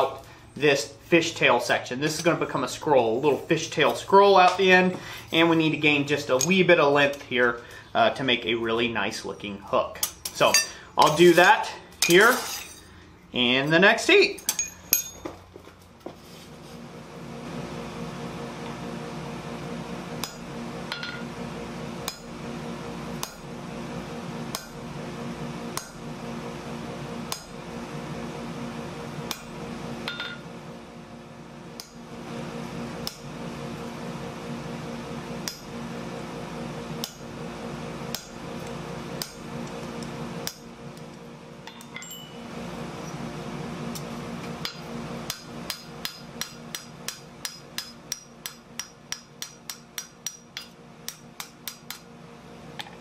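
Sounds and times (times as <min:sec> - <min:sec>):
steady hum: 0:00.0 - 0:53.0
hammer ringing on anvil: 0:14.4 - 0:15.3, 0:30.1 - 0:30.4, 0:41.7 - 0:42.4, 0:44.6 - 0:50.7.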